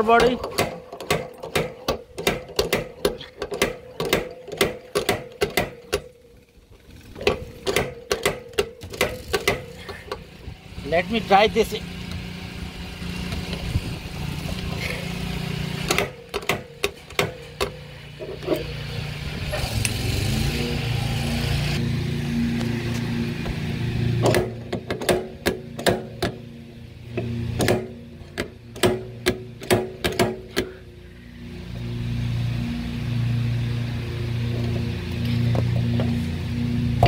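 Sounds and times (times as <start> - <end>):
sharp metallic clicks and knocks: 0.0 - 6.3, 7.1 - 10.3, 15.8 - 18.8, 24.2 - 26.5, 27.1 - 30.7
dent puller hum: 0.0 - 37.0.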